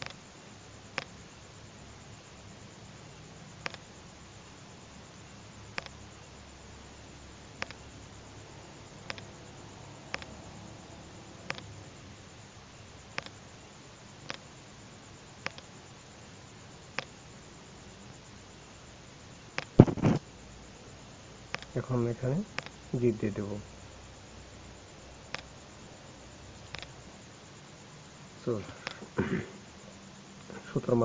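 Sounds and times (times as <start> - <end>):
low steady hum: 0.0 - 31.0
short sharp double clicks: 3.6 - 3.8, 9.1 - 9.3, 10.1 - 10.4, 11.5 - 11.7, 15.4 - 15.7, 21.5 - 21.8, 22.5 - 22.8, 26.7 - 27.0.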